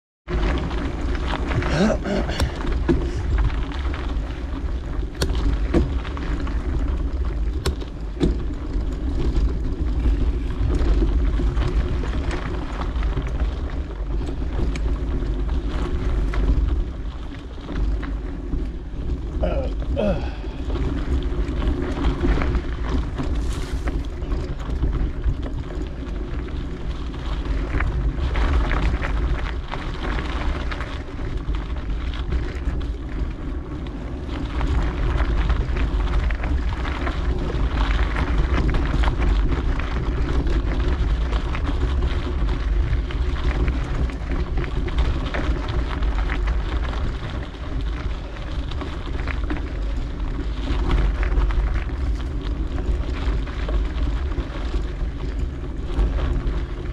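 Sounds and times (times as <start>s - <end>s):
low rumble: 0.3s - 56.9s
wind buffeting microphone: 0.3s - 56.9s.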